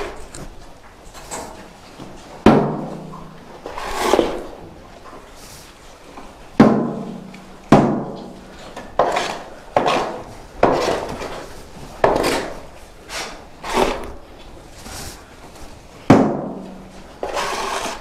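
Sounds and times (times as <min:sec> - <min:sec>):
shovel scraping floor: 0:03.6 - 0:04.5, 0:09.0 - 0:14.2, 0:17.2 - 0:18.0.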